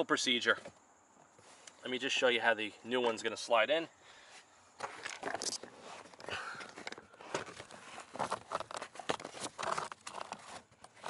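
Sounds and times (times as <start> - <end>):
air filter rustling and crinkling: 4.8 - 11.0.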